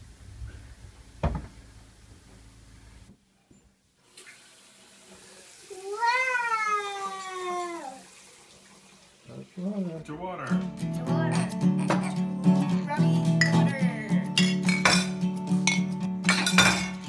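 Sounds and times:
tap water running into metal sink: 4.1 - 9.3.

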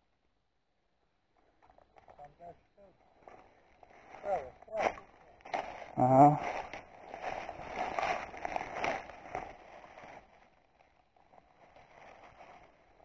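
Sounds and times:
leafy branches rustling: 3.1 - 13.0.

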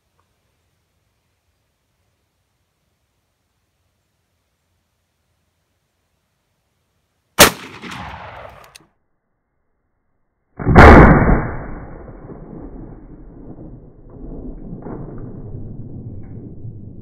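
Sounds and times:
shotgun shots: 7.4 - 8.7, 10.6 - 12.9.

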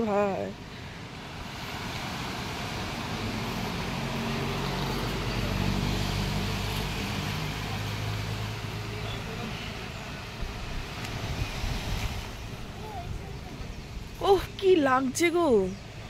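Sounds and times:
vehicle engine passing by: 1.3 - 13.3.

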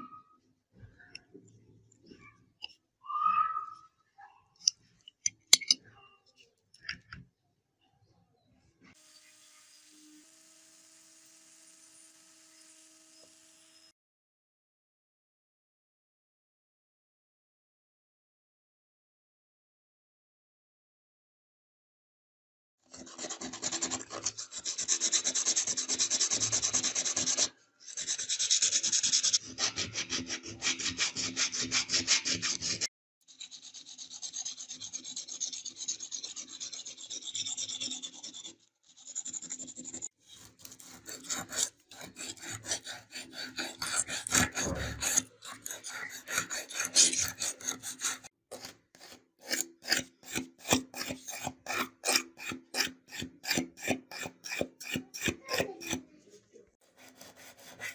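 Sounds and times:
sanding stick scraping: 23.0 - 56.0, 56.8 - 57.9
abrasive rubbing on metal toy car: 23.6 - 56.0.

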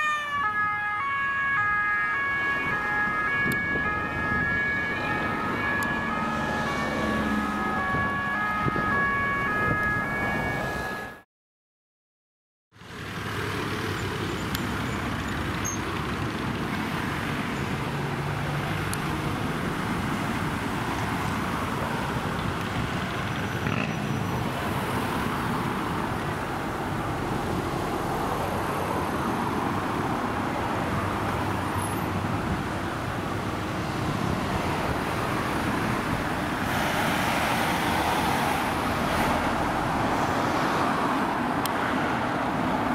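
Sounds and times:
cars passing on a street: 0.0 - 11.2, 12.7 - 42.9.

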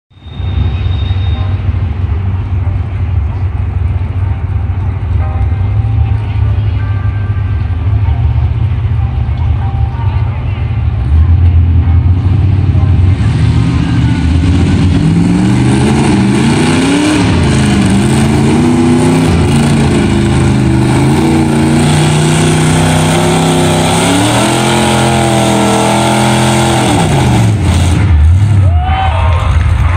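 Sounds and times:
truck engine revving: 7.3 - 28.8.

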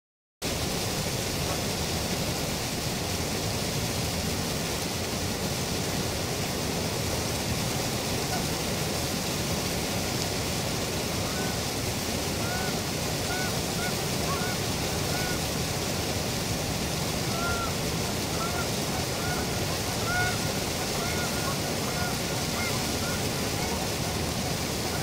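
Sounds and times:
water rushing at a dam: 0.4 - 25.0
waterfowl calls: 11.2 - 15.6, 16.9 - 25.0.

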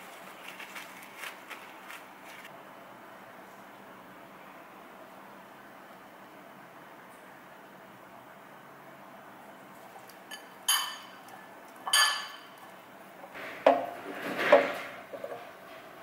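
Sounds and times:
potato sticks rattling and sliding: 0.0 - 2.5
metal utensil clinking on ceramic bowl: 10.3 - 12.6.

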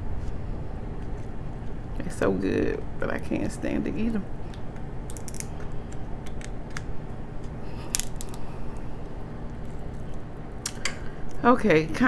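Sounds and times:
crab shell cracking: 4.5 - 11.1.

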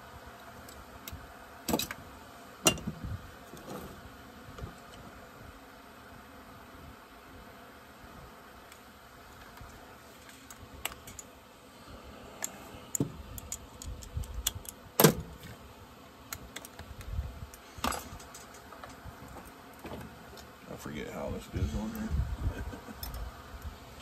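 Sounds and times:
small parts and hand tools clinking: 9.6 - 11.3, 13.3 - 14.8, 16.3 - 20.5, 22.9 - 24.0.

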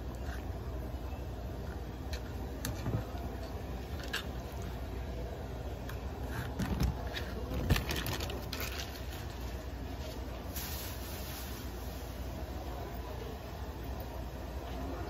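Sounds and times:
steady low hum: 0.0 - 15.0
plastic bag crinkling: 6.5 - 9.7.

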